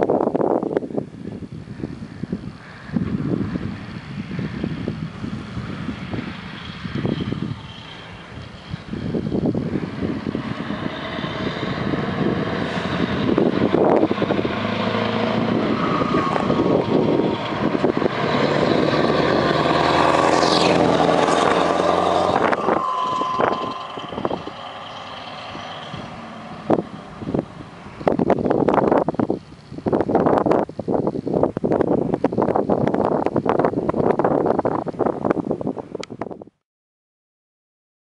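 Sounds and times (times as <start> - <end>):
truck driving past: 4.4 - 28.6.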